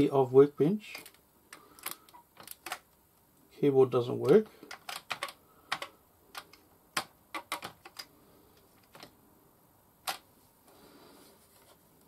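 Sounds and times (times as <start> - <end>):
keyboard keys clicking: 4.7 - 8.1.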